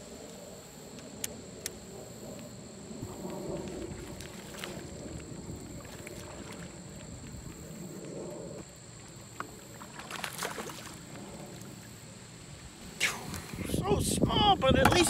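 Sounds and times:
fish splashing at water surface: 9.7s - 11.2s.

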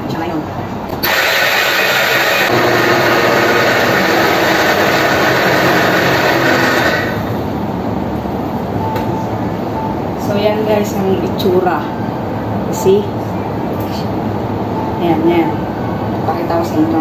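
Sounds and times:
electric blender grinding: 1.0s - 7.4s.

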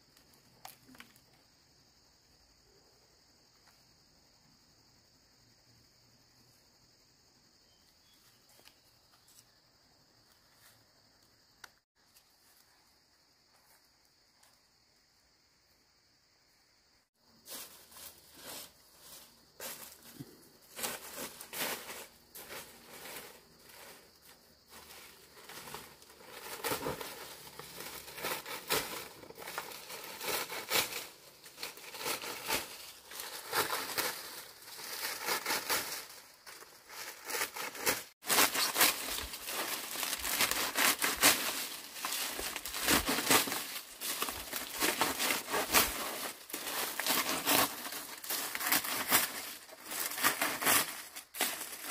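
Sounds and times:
crinkling and rustling: 19.5s - 51.9s.

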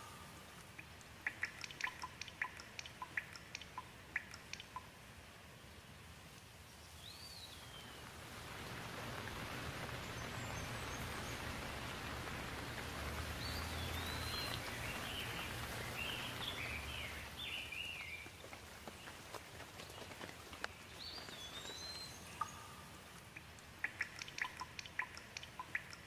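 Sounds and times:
bird singing: 0.0s - 4.9s, 6.8s - 8.1s, 13.2s - 19.2s, 19.8s - 26.0s
steady rain: 0.0s - 26.0s.

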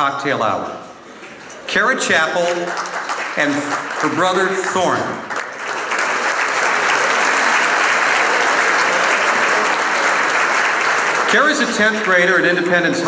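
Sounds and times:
audience applauding: 2.4s - 12.8s.

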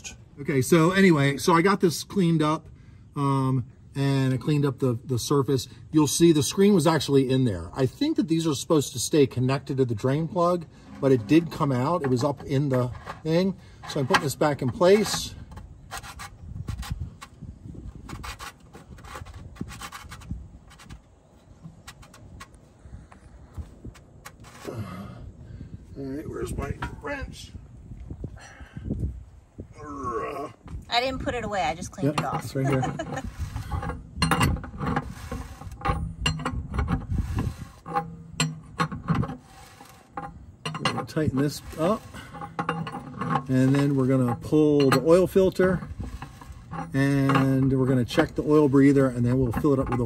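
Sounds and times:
metal drain plug threading: 9.6s - 16.0s, 31.9s - 50.0s
wrench metal clicks and scrapes: 32.0s - 50.0s.

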